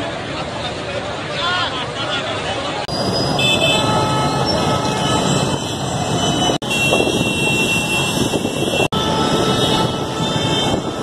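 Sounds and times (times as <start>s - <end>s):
crowd noise: 0.0s - 6.5s
motorcycle engines in traffic: 0.0s - 11.0s.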